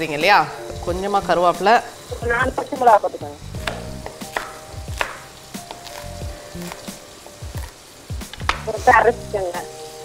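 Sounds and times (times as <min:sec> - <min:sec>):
chicken sizzling in oil: 0:00.0 - 0:10.0
knife chopping on wooden board: 0:03.6 - 0:06.0.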